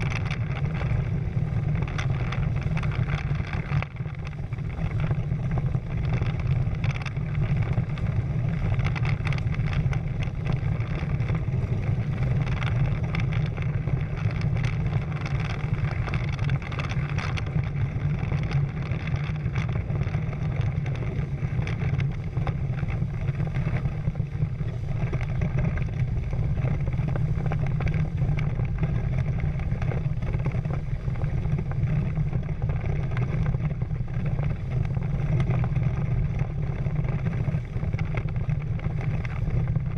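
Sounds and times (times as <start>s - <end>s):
water rushing along hulls: 0.0s - 39.9s
wind buffeting microphone: 0.0s - 39.9s.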